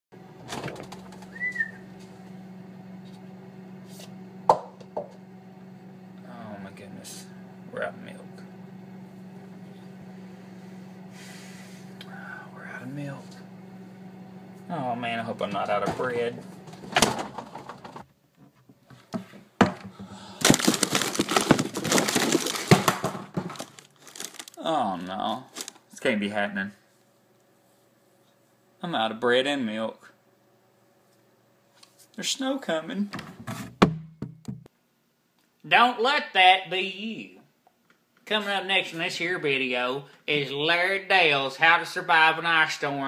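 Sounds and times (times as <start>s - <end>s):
refrigerator humming: 0.2s - 34.7s
rustling and clattering: 16.6s - 24.6s.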